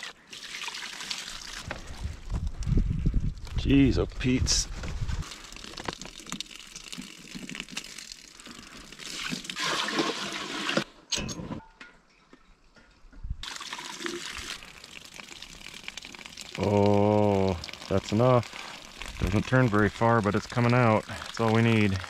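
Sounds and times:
water trickling into metal pot: 5.2 - 10.8, 13.4 - 22.0.

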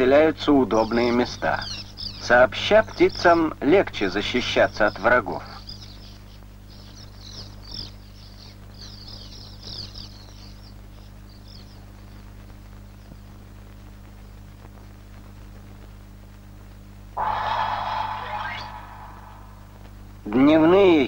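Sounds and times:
birds twittering: 0.0 - 15.4, 17.2 - 21.0
low hum: 11.2 - 20.8.

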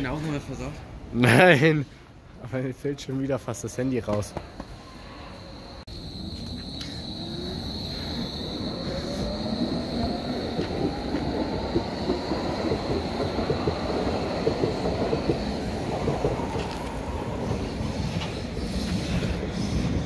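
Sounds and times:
wheels clattering on rails: 9.0 - 20.0.

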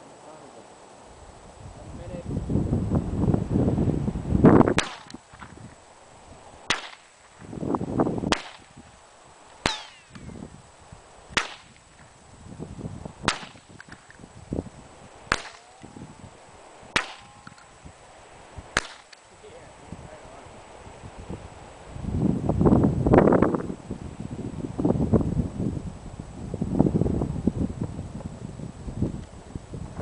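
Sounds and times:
rifle shots cracking: 4.8 - 5.2, 6.7 - 7.2, 8.3 - 8.7, 9.6 - 10.3, 11.3 - 11.8, 13.3 - 14.1, 15.3 - 15.7, 16.9 - 17.6, 18.8 - 19.2.

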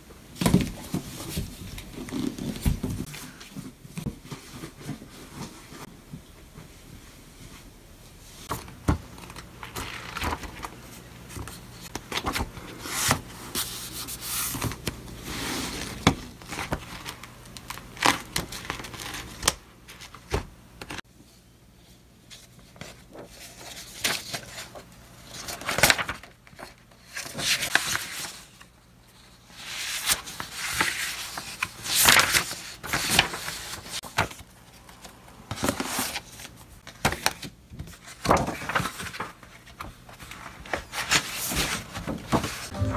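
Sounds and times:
paper pages rustling: 8.3 - 21.0, 22.2 - 42.9.

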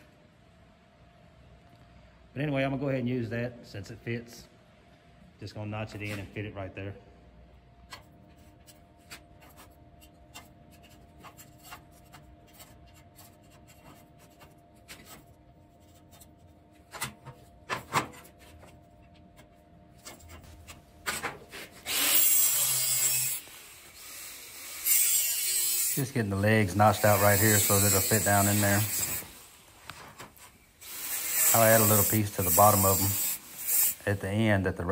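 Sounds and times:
angle grinder whine: 21.8 - 29.4.

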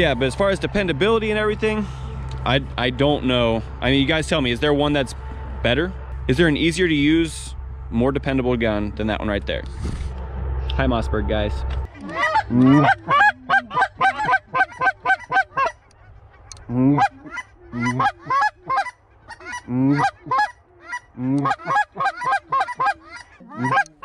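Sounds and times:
geese honking: 11.8 - 24.0.

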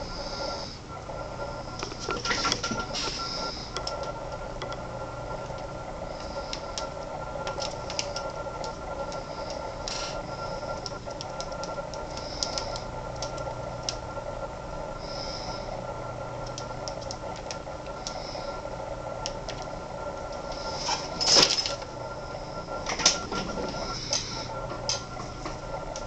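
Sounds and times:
steady background hum: 0.0 - 26.0
birds pecking wood clicks: 6.3 - 10.0, 10.7 - 14.0, 16.4 - 18.2.

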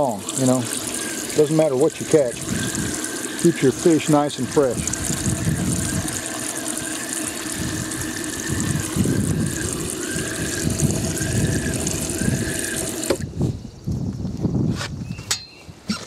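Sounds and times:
bubbling water: 0.0 - 13.3
pump motor hum: 0.0 - 13.5
light squeak: 15.0 - 16.0.

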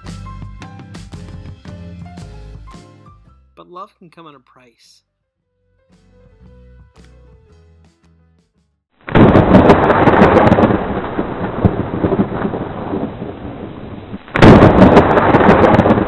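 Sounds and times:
loud thunder peals: 9.0 - 16.0.

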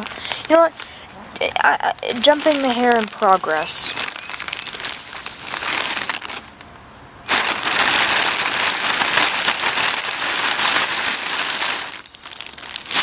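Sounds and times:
dog hair crinkling and rustling: 1.4 - 6.7, 7.3 - 13.0.

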